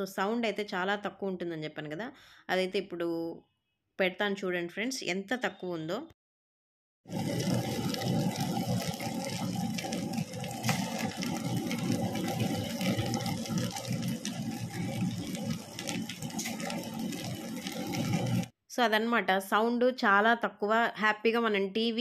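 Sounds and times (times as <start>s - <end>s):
wet grinder churning batter: 7.1s - 18.5s.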